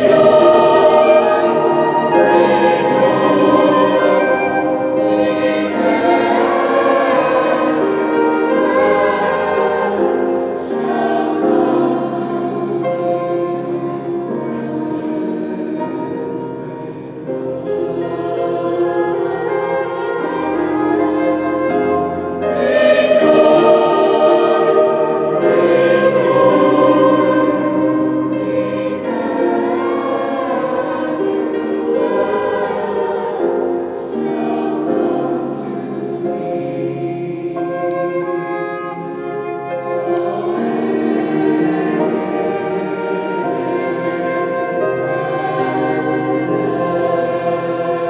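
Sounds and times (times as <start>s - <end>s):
choir singing a hymn: 0.0s - 48.0s
flute: 0.0s - 48.0s
piano: 0.0s - 48.0s.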